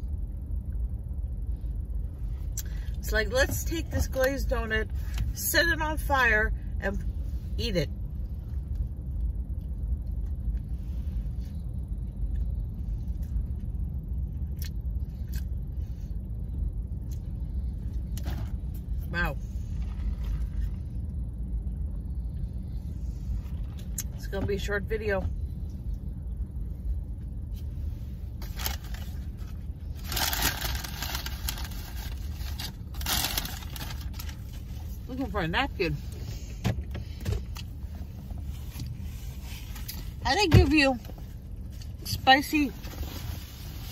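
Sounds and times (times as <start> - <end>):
car engine idling rumble: 0.0 - 43.9
rustling and scraping of objects: 27.5 - 35.1, 36.0 - 42.1, 42.7 - 43.9.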